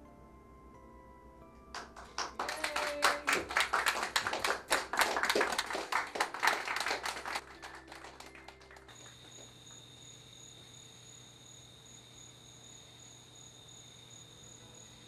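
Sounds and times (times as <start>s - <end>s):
group of people clapping: 1.7s - 9.5s.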